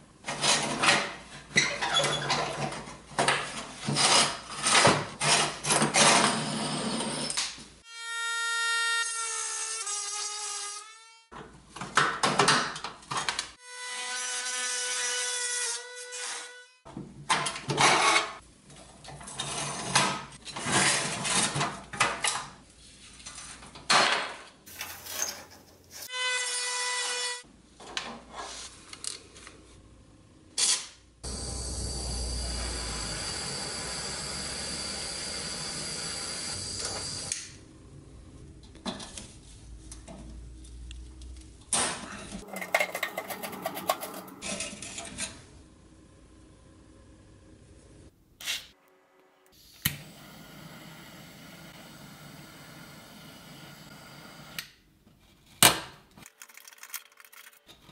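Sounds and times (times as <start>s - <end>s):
hand tools scraping rusty metal: 42.4s - 45.3s.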